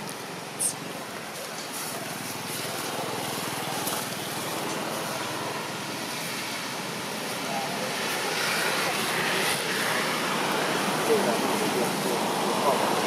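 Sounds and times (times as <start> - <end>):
engine running steadily: 0.0 - 13.0.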